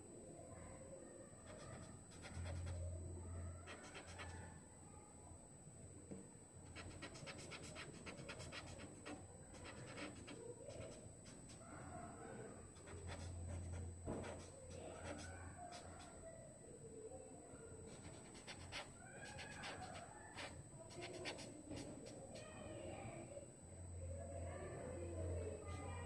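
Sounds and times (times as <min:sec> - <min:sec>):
low electrical hum: 0:00.0 - 0:26.0
pencil scratching on paper: 0:01.5 - 0:02.9, 0:03.6 - 0:04.4, 0:06.7 - 0:11.6, 0:12.7 - 0:16.2, 0:17.9 - 0:22.5.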